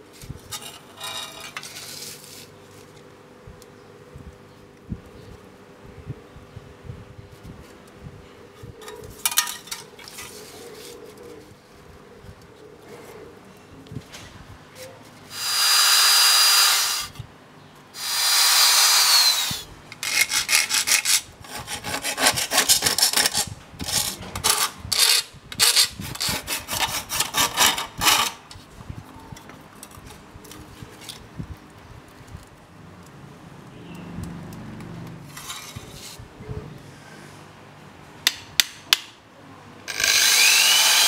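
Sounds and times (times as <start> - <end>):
angle grinder whine: 15.3 - 17.2, 18.0 - 19.7, 39.9 - 41.0
rasping strokes on steel: 18.0 - 28.4.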